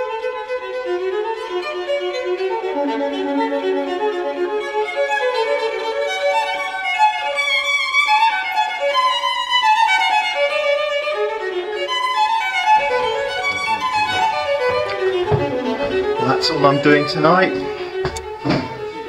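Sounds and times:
violin melody: 0.0 - 19.0
low handling rumble: 12.8 - 18.4.

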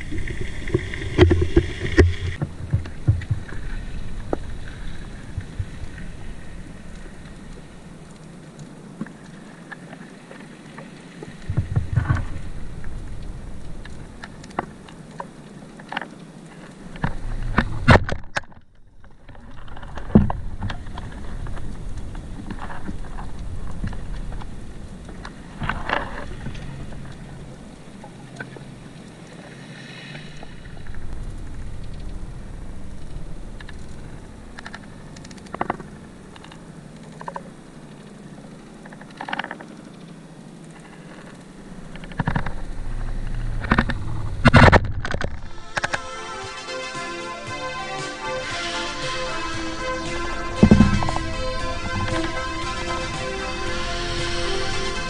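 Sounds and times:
water rumbling and churning: 0.0 - 55.0
low rumble: 30.4 - 35.2, 41.6 - 55.0.

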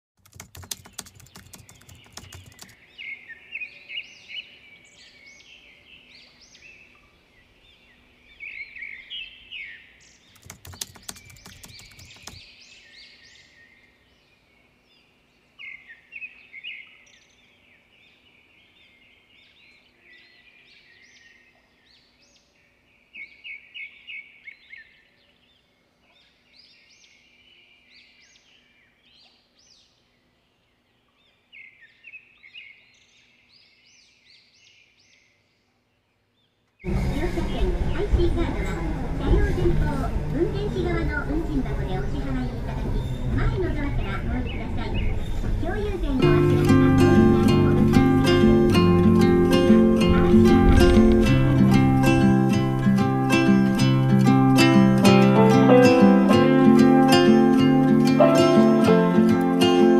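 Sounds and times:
crackling noise: 0.2 - 2.8, 10.4 - 12.4, 42.6 - 59.9
small birds chirping: 0.2 - 39.5, 40.4 - 59.9.

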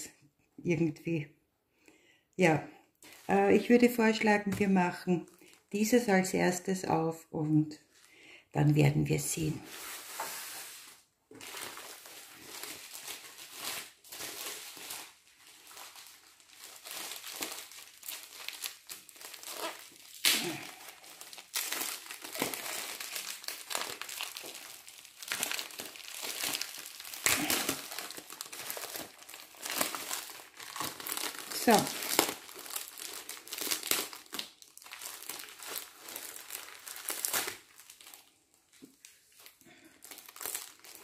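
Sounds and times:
plastic packaging crinkling: 9.6 - 41.0.

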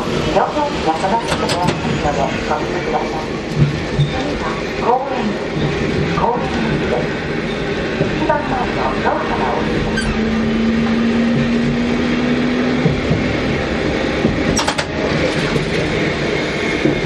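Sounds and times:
tram running rumble: 0.0 - 17.0
brief high squeak: 9.9 - 10.2.

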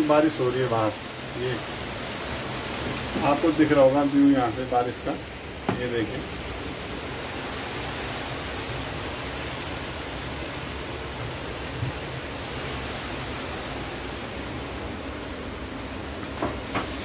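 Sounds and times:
heavy rain pouring: 0.0 - 17.0.

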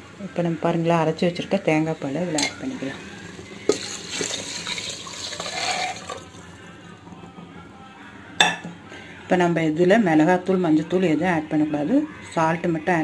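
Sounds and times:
liquid pouring and splashing: 2.4 - 6.6.

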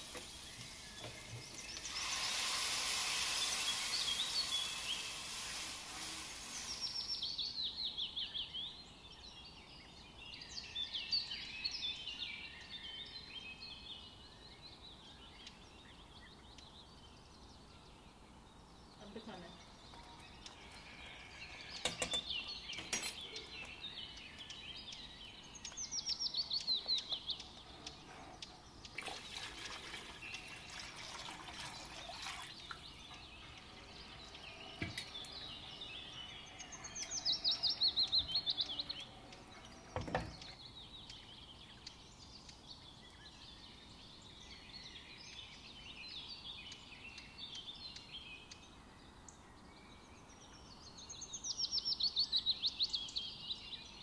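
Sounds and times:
hiss: 0.0 - 7.5
small birds chirping: 0.0 - 54.0.

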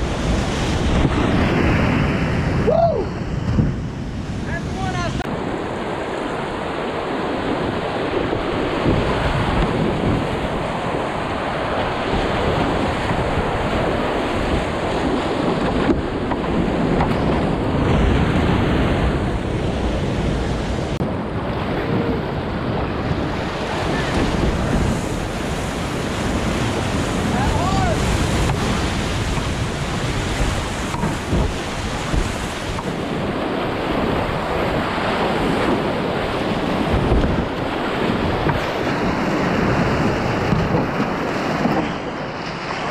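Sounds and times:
wind rumble on microphone: 0.0 - 42.9
whitewater rapids roaring: 4.5 - 42.9.

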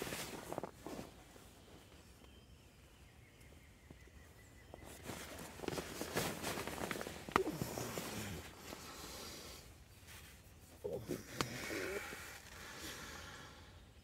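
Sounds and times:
rustling: 0.0 - 2.4, 4.7 - 12.8.

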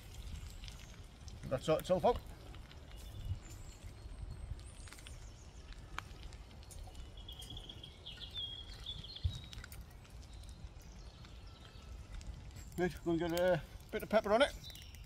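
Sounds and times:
bird singing: 0.4 - 15.0
wood clicking at stove: 4.9 - 15.0.

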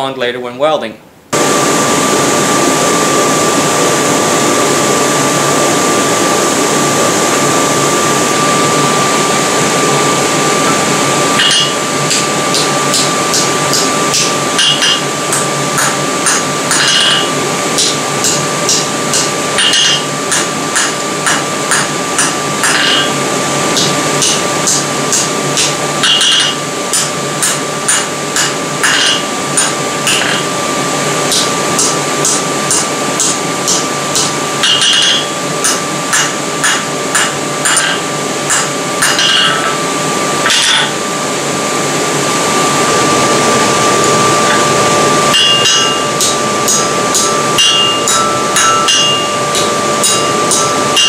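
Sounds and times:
forge blower hum and hiss: 0.0 - 51.0
hammer striking steel on anvil: 11.4 - 23.2, 23.8 - 30.5, 31.3 - 39.8, 40.4 - 41.0, 45.3 - 51.0.

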